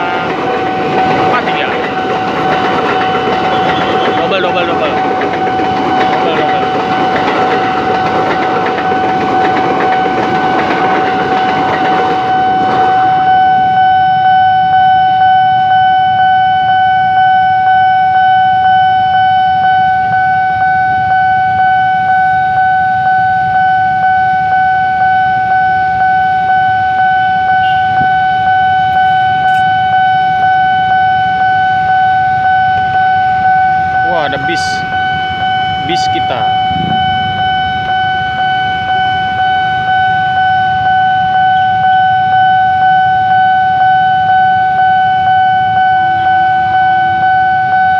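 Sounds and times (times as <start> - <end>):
electric train passing: 0.0 - 16.8, 17.8 - 47.7
level crossing alarm tone: 0.0 - 47.9.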